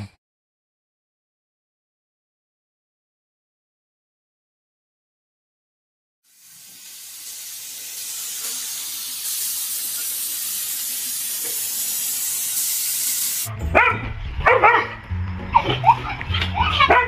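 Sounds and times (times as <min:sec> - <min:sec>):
steady high hiss: 0:06.3 - 0:13.5
dog yipping and barking: 0:13.7 - 0:15.0, 0:16.6 - 0:17.0.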